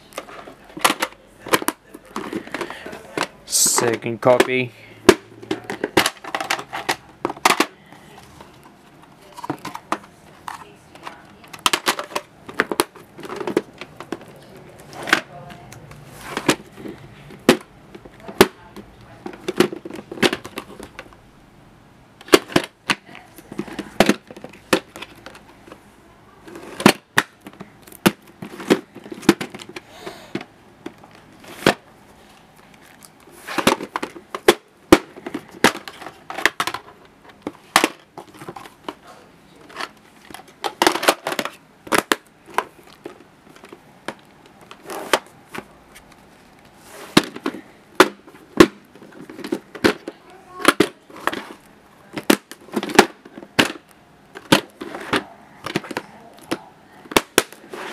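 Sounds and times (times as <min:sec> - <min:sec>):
plastic cases clicking and clacking: 0:00.1 - 0:21.2, 0:22.2 - 0:25.8, 0:26.4 - 0:31.9, 0:32.6 - 0:57.9.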